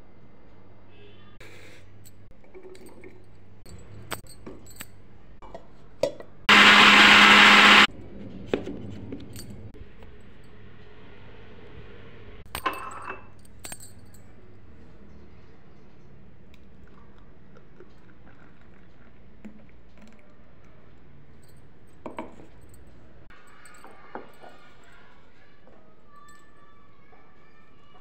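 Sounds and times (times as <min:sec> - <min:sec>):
mixer grinder running: 0:06.5 - 0:07.9
steel jar and glass clinking: 0:12.5 - 0:14.4.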